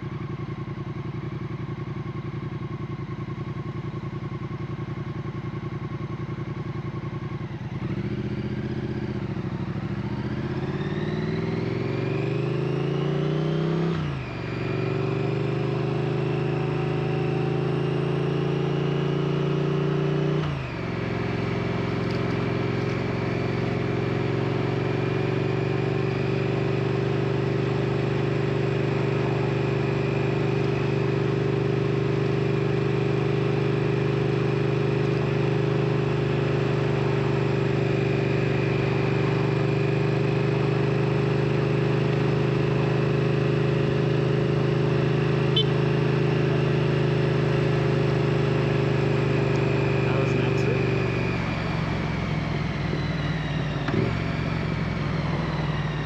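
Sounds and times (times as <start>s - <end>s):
motorcycle engine upshifting: 41.9s - 56.0s.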